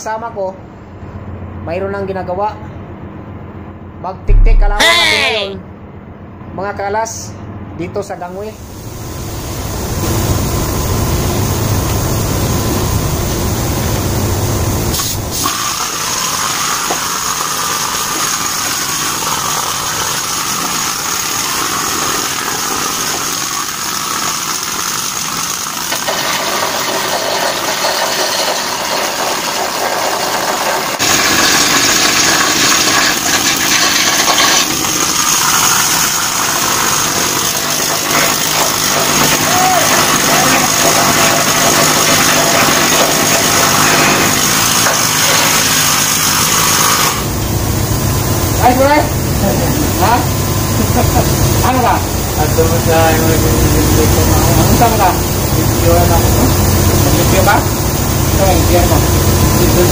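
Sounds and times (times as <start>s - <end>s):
pneumatic tool hammering steel: 14.9s - 47.3s.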